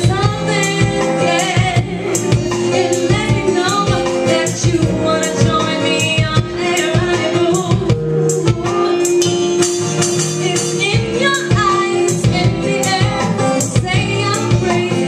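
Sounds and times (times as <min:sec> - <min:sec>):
band accompaniment: 0:00.0 - 0:15.0
woman singing: 0:00.0 - 0:15.0.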